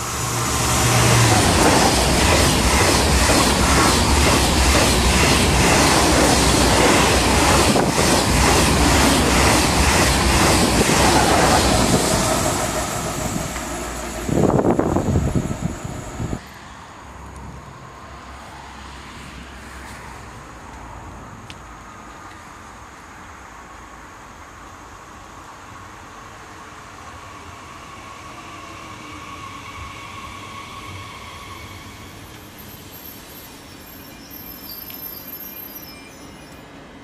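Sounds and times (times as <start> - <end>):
rushing air: 0.0 - 16.5
high-speed train passing: 0.0 - 21.5, 22.2 - 37.0
wind buffeting microphone: 1.3 - 16.4.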